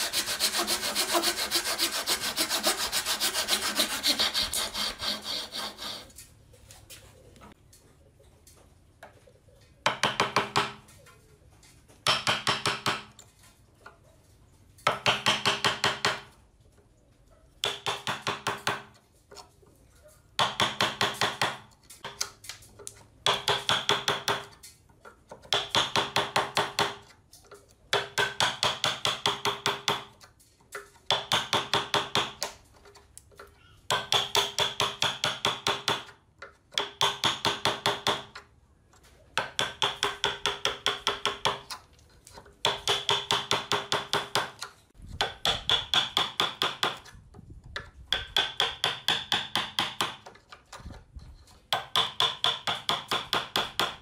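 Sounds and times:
hammer tapping wood chisel: 33.9s - 38.5s, 39.4s - 41.8s, 42.6s - 47.1s, 47.8s - 50.5s, 51.7s - 54.0s.

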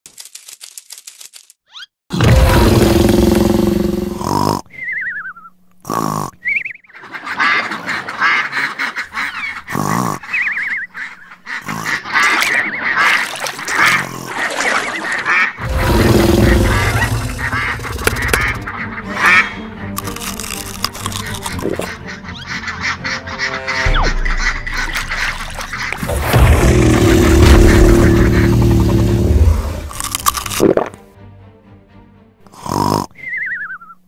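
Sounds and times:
loud rough bursts: 2.2s - 4.4s, 15.6s - 18.6s, 25.9s - 30.2s.

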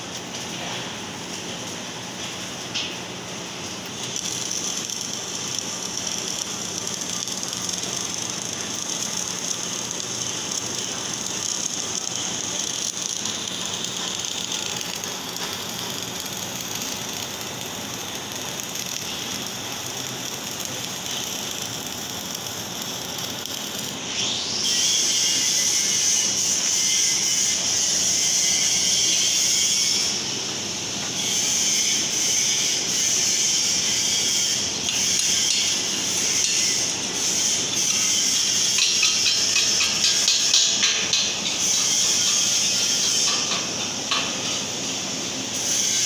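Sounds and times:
welding arc crackling hiss: 0.0s - 46.0s.

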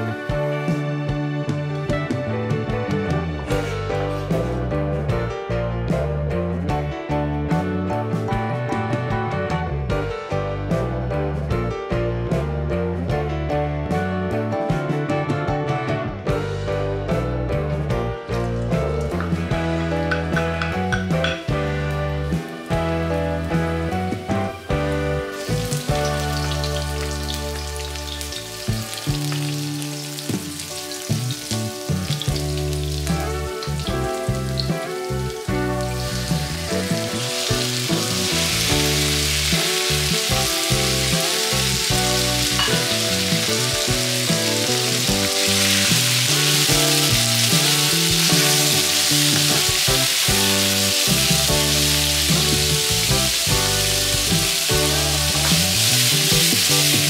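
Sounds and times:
background music: 0.0s - 57.0s
food sizzling in a wok: 3.4s - 4.7s, 18.7s - 57.0s.

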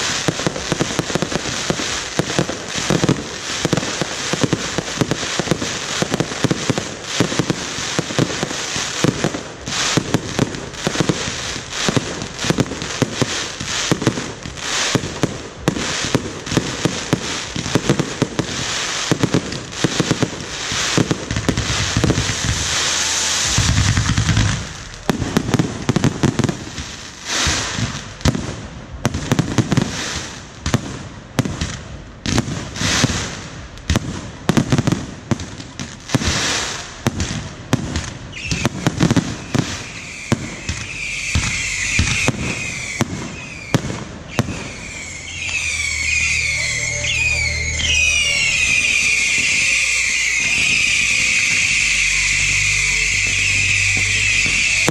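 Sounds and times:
fireworks bangs and crackling: 0.0s - 54.9s
rushing hiss with low rumble: 0.0s - 54.9s
shrill wavering whistle: 38.3s - 38.8s, 39.4s - 54.9s.

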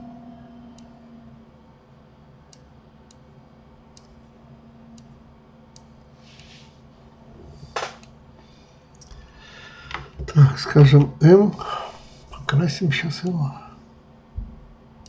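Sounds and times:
low steady hum: 0.0s - 15.0s
computer mouse clicking: 2.5s - 3.2s.

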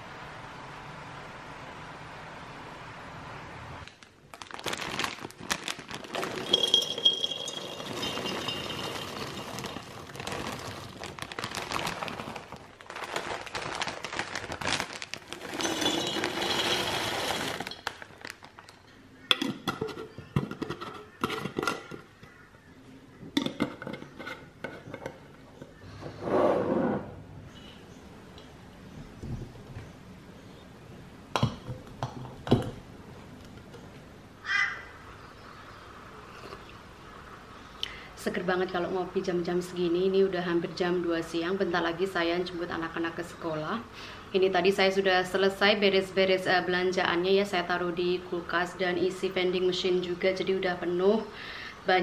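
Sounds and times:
packaging crinkling: 3.8s - 18.8s
nuts clattering into glass jars: 6.0s - 11.0s, 15.3s - 18.1s.

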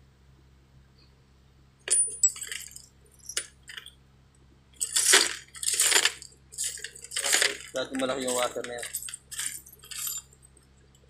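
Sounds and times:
metal washers clinking: 1.9s - 3.9s, 4.8s - 10.4s.

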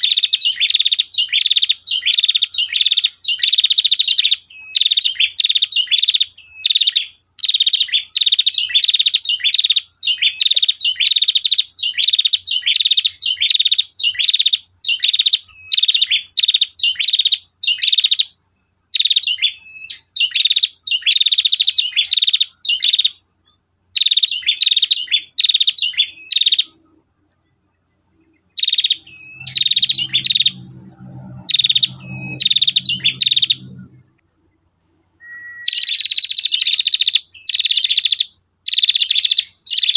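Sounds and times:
bird rapid trilling call: 0.0s - 18.3s, 24.0s - 26.8s, 28.5s - 34.2s, 35.2s - 39.9s.

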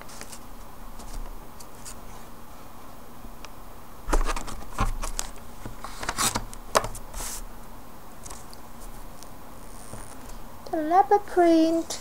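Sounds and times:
paper rustling: 0.0s - 2.3s, 4.1s - 7.5s, 8.2s - 10.4s.

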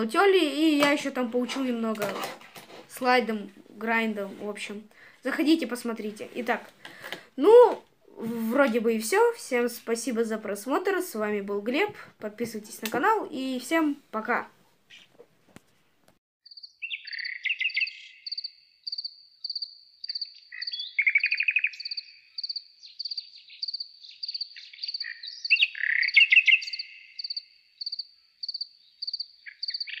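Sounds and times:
crickets chirping: 16.5s - 25.6s, 26.6s - 29.9s
low trilling calls: 16.5s - 30.0s.

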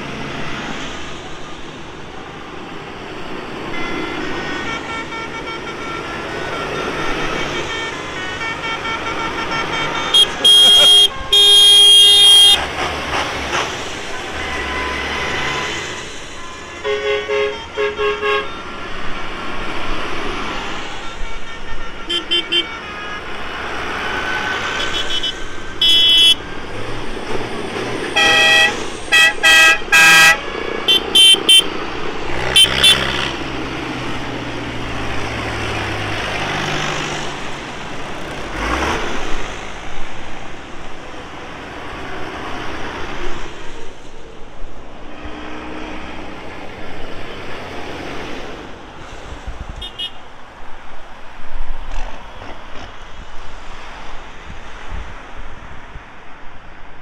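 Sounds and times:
tractor engines running: 0.0s - 16.9s
tractor horns tooting: 3.6s - 18.8s, 21.0s - 26.6s, 28.0s - 33.5s, 49.8s - 50.3s.

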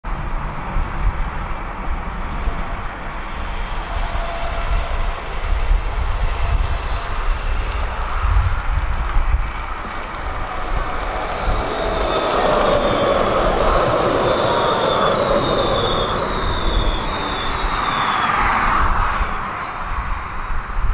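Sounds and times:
tram rumbling on rails: 0.0s - 20.9s
hiss: 2.2s - 8.9s.

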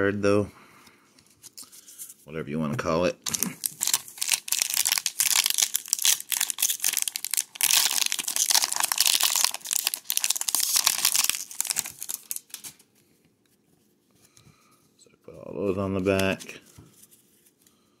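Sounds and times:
plastic wrapper crinkling and tearing: 3.2s - 12.9s.

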